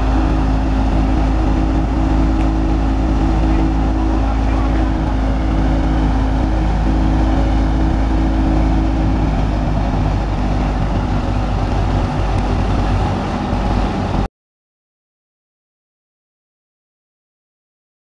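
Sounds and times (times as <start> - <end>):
thresher drum and fan rushing: 0.0 - 14.3
tractor diesel engine droning: 0.0 - 14.3.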